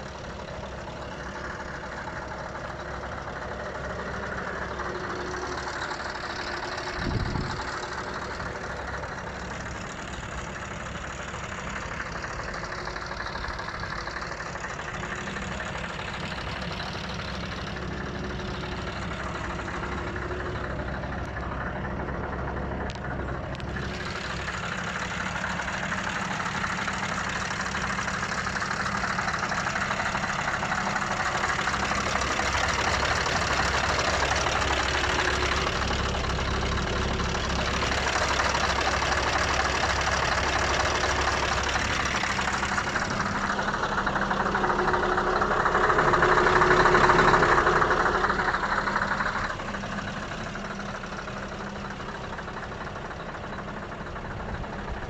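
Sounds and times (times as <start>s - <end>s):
truck engine idling: 0.0s - 55.0s.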